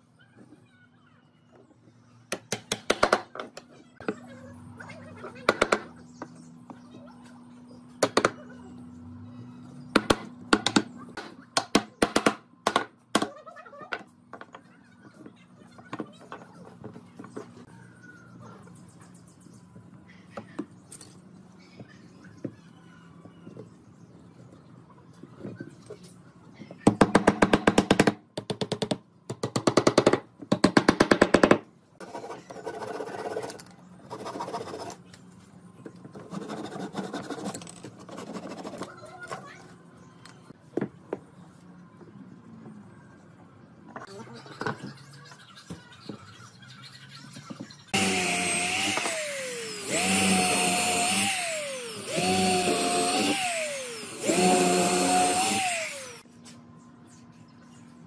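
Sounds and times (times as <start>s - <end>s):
electric drill boring into wood: 48.0s - 56.2s.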